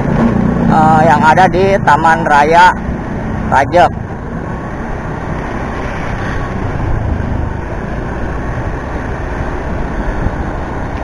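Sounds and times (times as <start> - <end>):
motorcycle engine: 0.0 - 2.2
wind noise on microphone: 5.2 - 7.9.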